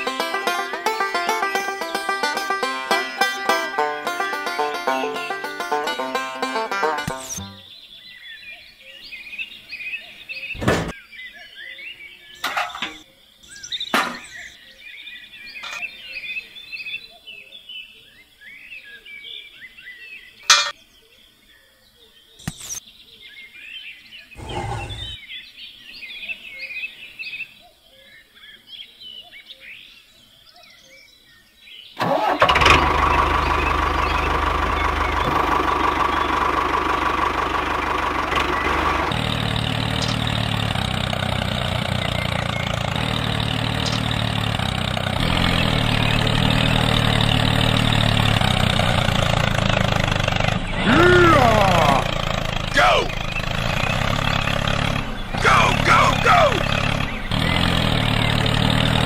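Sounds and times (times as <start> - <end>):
birds chirping: 4.9 - 32.4, 33.0 - 59.0
diesel engine idling: 24.4 - 25.2, 32.0 - 59.0.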